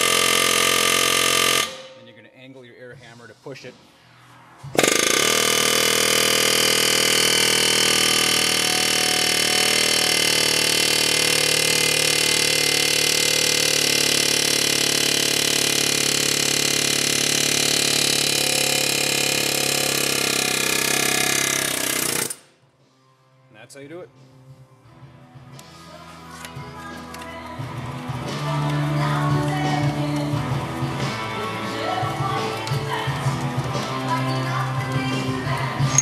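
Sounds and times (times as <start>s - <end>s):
pneumatic air hammer buzzing: 0.0s - 2.0s, 4.8s - 22.6s, 35.7s - 36.0s.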